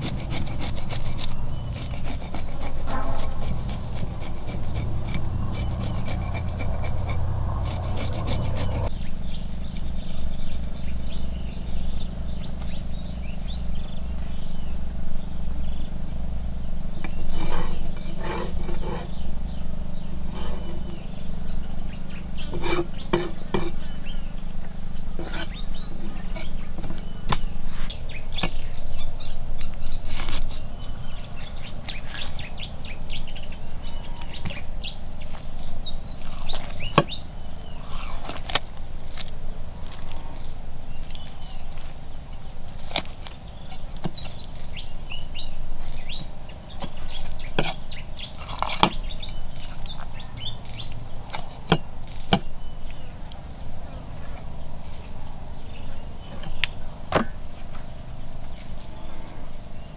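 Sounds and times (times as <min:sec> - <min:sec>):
cleaver chopping on wooden block: 0:00.0 - 0:08.9, 0:56.5 - 0:57.4
birds chirping: 0:00.0 - 0:59.9.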